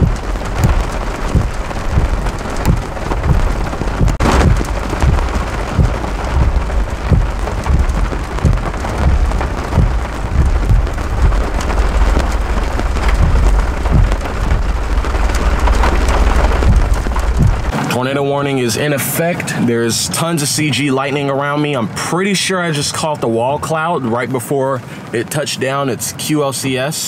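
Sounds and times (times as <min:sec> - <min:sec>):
low thumps: 0:00.0 - 0:17.7
thunder rumbling: 0:00.0 - 0:17.8
heavy rain on car windshield: 0:00.0 - 0:27.0.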